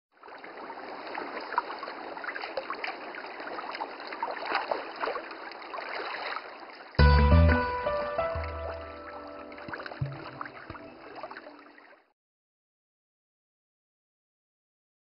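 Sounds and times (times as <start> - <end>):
water splashing and trickling: 0.1 - 12.1.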